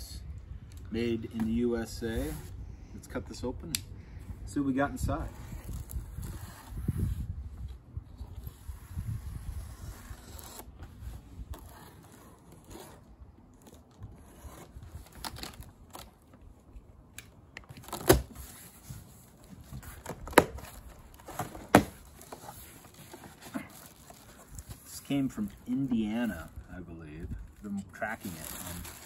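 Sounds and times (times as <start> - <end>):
knife scraping through tape: 5.2 - 7.4, 8.2 - 15.6
tape and cardboard snapping: 17.1 - 18.8, 19.6 - 22.5.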